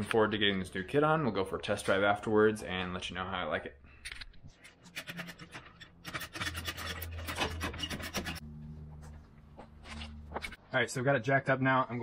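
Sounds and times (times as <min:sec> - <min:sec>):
low steady hum: 0:08.2 - 0:10.6.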